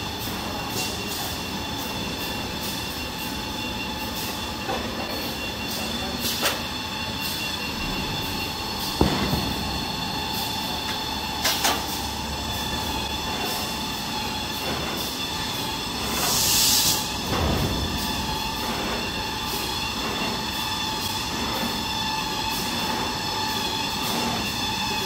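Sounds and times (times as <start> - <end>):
machine constant hum: 0.0 - 25.0
production line machine noise: 0.0 - 25.0
sharp knock: 9.0 - 10.0.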